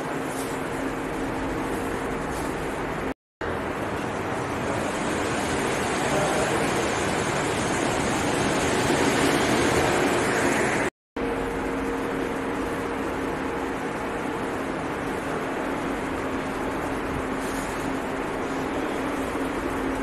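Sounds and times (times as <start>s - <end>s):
rushing indoor hall noise: 2.8s - 10.9s.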